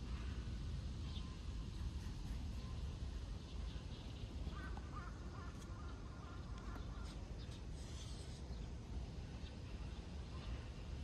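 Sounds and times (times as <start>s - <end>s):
faint bird calling: 4.4s - 8.4s.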